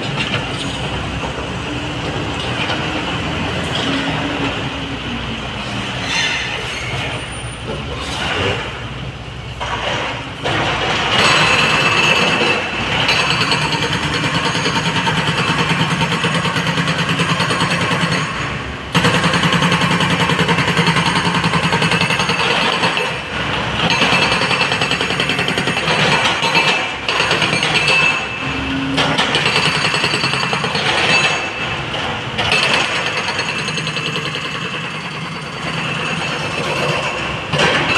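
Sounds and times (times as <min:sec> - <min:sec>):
heavy diesel engines running: 0:00.0 - 0:37.9
hydraulic rock breaker hammering: 0:09.6 - 0:37.9.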